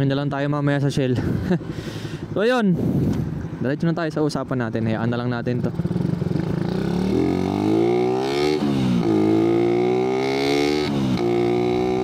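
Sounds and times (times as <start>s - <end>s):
motorcycle engine accelerating: 5.5s - 12.0s.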